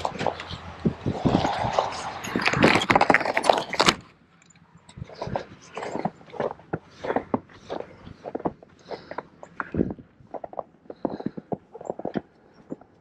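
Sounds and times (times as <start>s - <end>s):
footsteps through deep snow: 5.0s - 12.9s.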